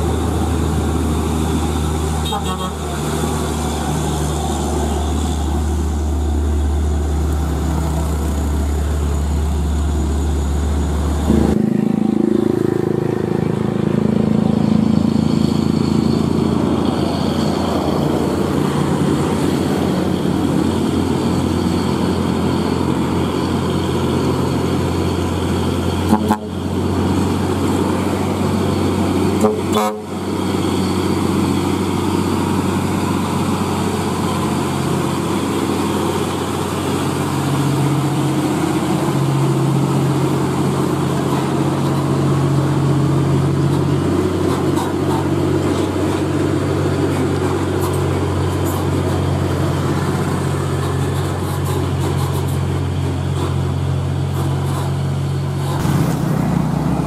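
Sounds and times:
diesel truck engine under load: 0.0 - 57.0.

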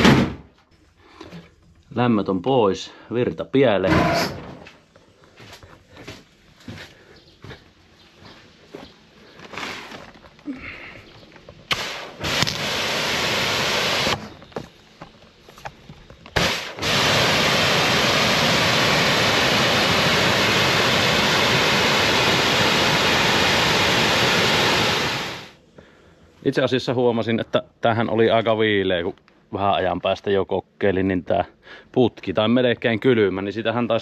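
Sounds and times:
pressure washer spray hiss: 11.7 - 14.2, 16.4 - 25.6.

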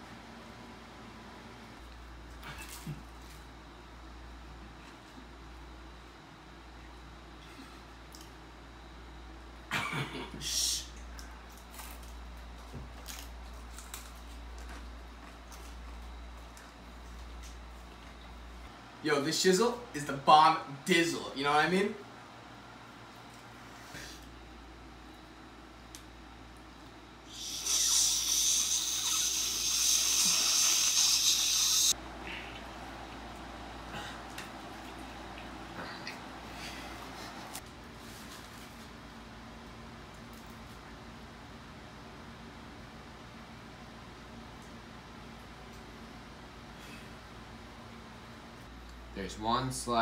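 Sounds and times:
person vocal burst: 27.3 - 31.9
sharp breathy hiss: 27.3 - 32.4.

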